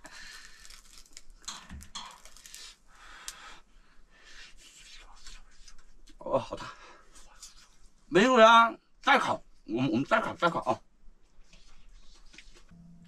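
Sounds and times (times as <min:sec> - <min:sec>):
metal tongs clicking and scraping: 0:01.4 - 0:02.6.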